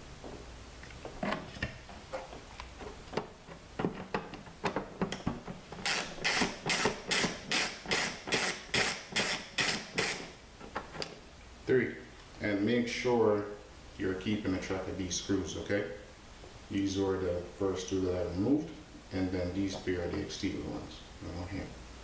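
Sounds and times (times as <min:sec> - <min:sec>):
screwdriver clicking strokes: 0:05.8 - 0:10.3.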